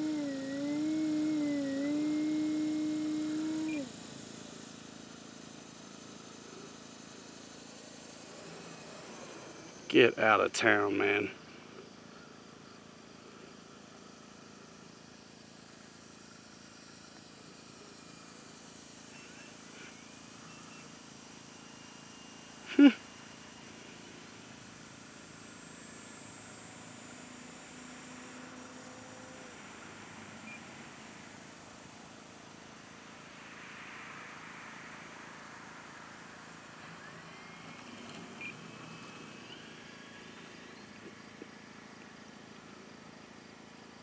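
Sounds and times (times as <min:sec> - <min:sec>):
electric motor and propeller hum: 0:00.0 - 0:09.9
model plane motor droning: 0:00.0 - 0:09.9, 0:17.5 - 0:31.2.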